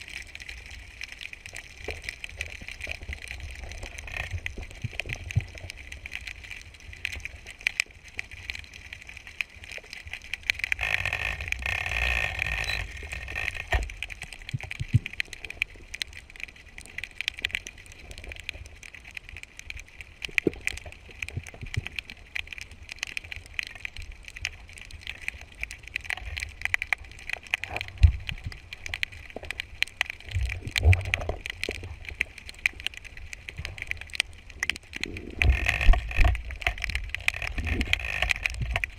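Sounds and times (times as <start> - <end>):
underwater crackle of fine clicks: 0.0 - 38.9
water rushing: 10.0 - 14.3
low underwater rumble: 33.4 - 38.9.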